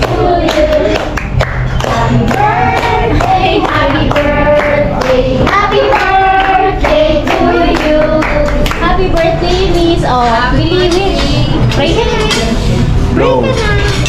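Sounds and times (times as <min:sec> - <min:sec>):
hands clapping: 0:00.0 - 0:09.3
voices singing: 0:00.0 - 0:12.6
steady low backing: 0:00.0 - 0:14.0.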